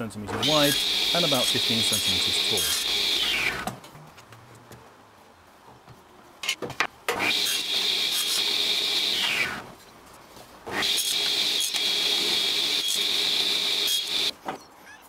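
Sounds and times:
table saw cutting wood: 0:00.4 - 0:03.7, 0:07.1 - 0:09.7, 0:10.7 - 0:14.3.

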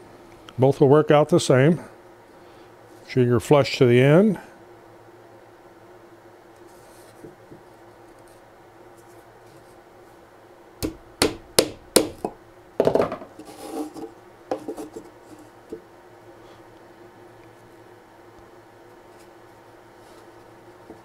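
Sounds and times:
hammer tapping a nail into wood: 0:10.8 - 0:12.3.

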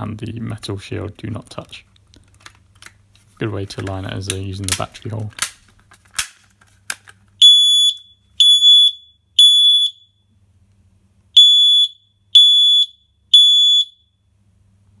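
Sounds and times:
smoke alarm beeping: 0:07.4 - 0:10.3, 0:11.4 - 0:14.2.

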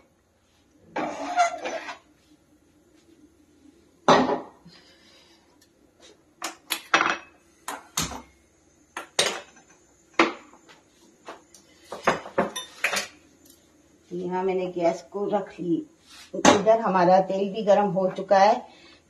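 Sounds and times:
cookware clinking and knocking: 0:06.9 - 0:07.4, 0:12.0 - 0:13.2.

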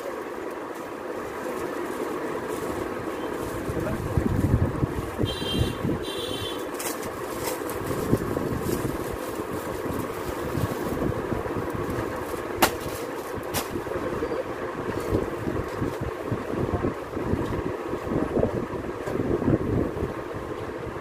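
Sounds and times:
plastic-wrapped fabric crinkling: 0:00.7 - 0:05.2, 0:06.7 - 0:13.5
plastic crackling: 0:06.6 - 0:13.8.

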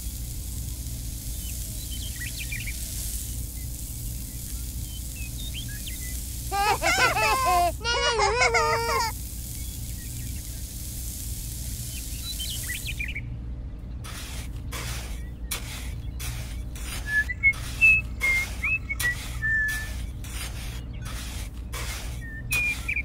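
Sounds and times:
sand pouring: 0:00.0 - 0:13.2, 0:14.0 - 0:23.0
high bird chirps: 0:01.2 - 0:06.4, 0:11.8 - 0:13.3, 0:15.1 - 0:23.0
trowel scraping sand: 0:04.1 - 0:07.7, 0:14.0 - 0:23.0.

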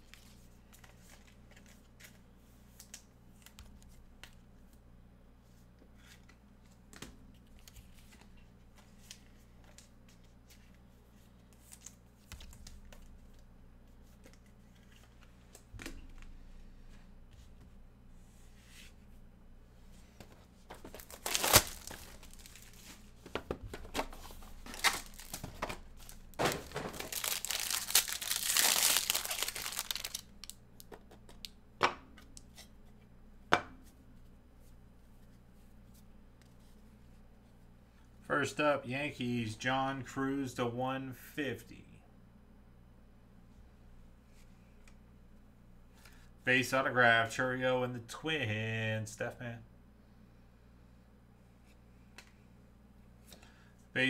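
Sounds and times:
packaging tearing and crinkling: 0:20.8 - 0:22.9, 0:24.6 - 0:30.6.

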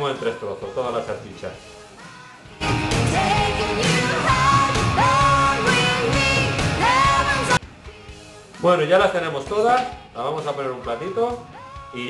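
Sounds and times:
rock song with singing: 0:00.0 - 0:12.0.

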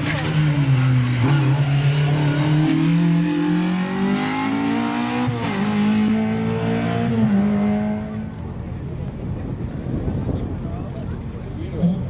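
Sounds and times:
race car engine revving: 0:00.0 - 0:08.5.

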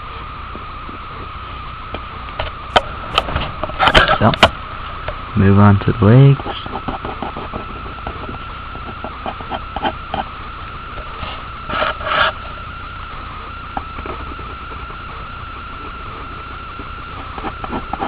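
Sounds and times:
high whine: 0:00.0 - 0:18.0
pen scratching on paper: 0:06.4 - 0:10.3, 0:17.0 - 0:18.0.

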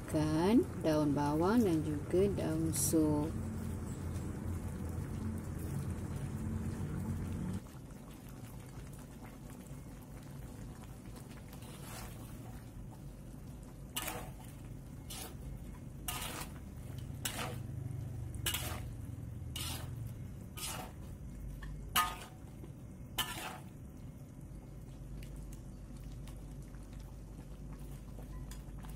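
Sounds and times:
low hum: 0:00.0 - 0:07.6
gravy simmering in a wok: 0:00.0 - 0:28.9
metal spatula scraping a wok: 0:11.6 - 0:12.2, 0:13.9 - 0:14.4, 0:15.1 - 0:17.8, 0:18.4 - 0:21.1, 0:21.9 - 0:22.5, 0:23.2 - 0:23.8.

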